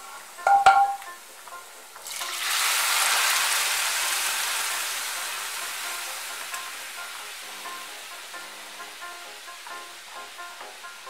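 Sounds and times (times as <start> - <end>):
food sizzling in hot oil: 0.0 - 11.0
metal clank: 0.5 - 1.1.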